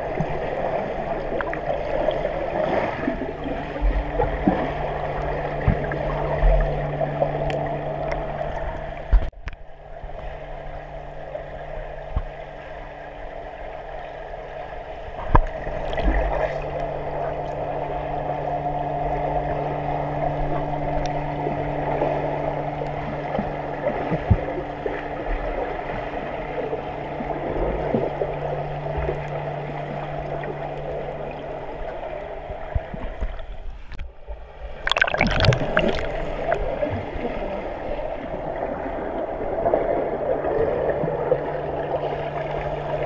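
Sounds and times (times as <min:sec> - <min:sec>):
steady low hum: 0:00.0 - 0:43.0
swimmers splashing underwater: 0:34.8 - 0:42.4.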